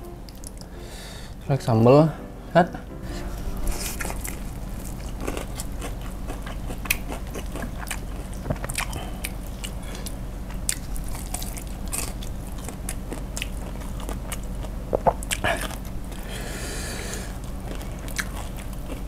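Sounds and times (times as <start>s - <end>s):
crunchy chewing of fried chicken: 4.8s - 19.0s.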